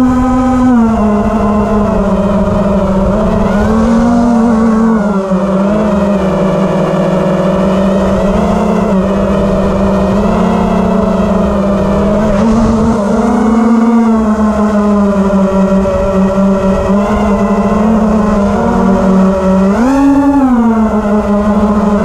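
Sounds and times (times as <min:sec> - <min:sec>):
drone motors whining: 0:00.0 - 0:22.0.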